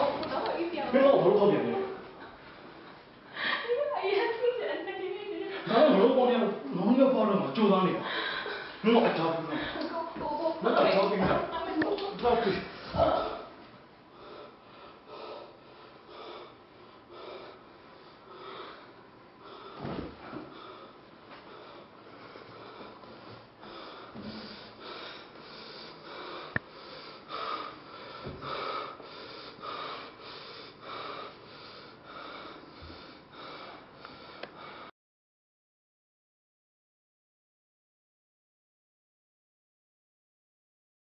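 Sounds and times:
heavy rapid breathing: 0:14.1 - 0:34.9.

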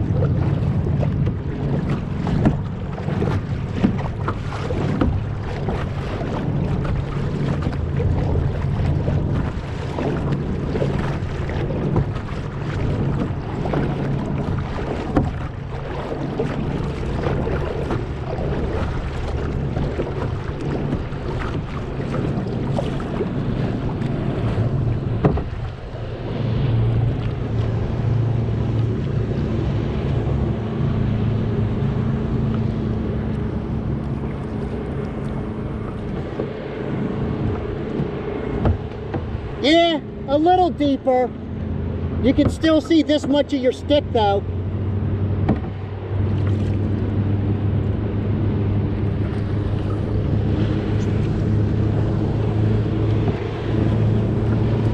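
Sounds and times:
wind buffeting microphone: 0:00.0 - 0:40.4
water splashing against kayak: 0:00.0 - 0:54.9.

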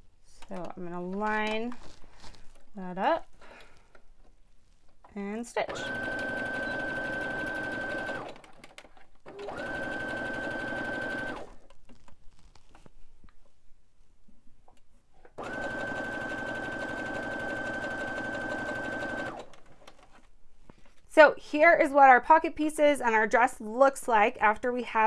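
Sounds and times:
sewing machine stitching: 0:05.6 - 0:11.6, 0:15.4 - 0:20.2.

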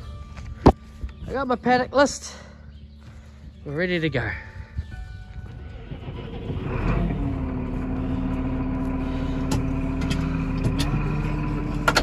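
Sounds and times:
tractor diesel engine idling: 0:03.7 - 0:12.0.

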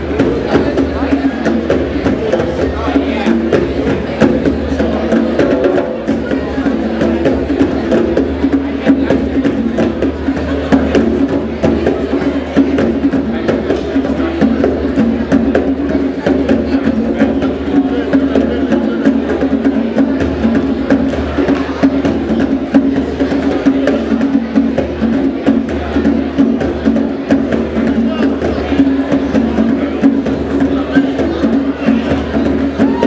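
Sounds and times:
djembe drums playing: 0:00.0 - 0:33.0.

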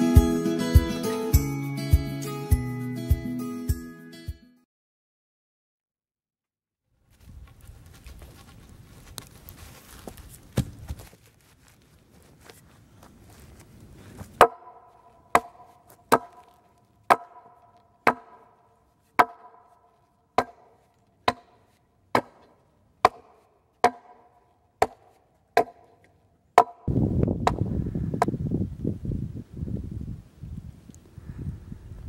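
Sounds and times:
wind noise on microphone: 0:07.1 - 0:11.0, 0:26.9 - 0:32.0
hatchet chopping wood: 0:14.4 - 0:18.6, 0:19.2 - 0:19.8, 0:20.4 - 0:27.6.

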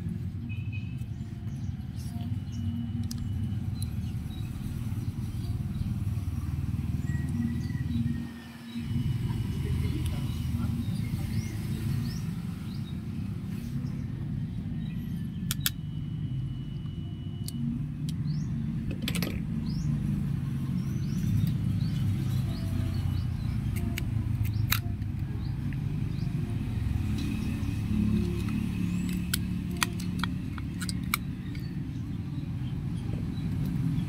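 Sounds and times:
sharp clicks: 0:15.4 - 0:15.8, 0:23.7 - 0:25.8, 0:28.2 - 0:31.7.

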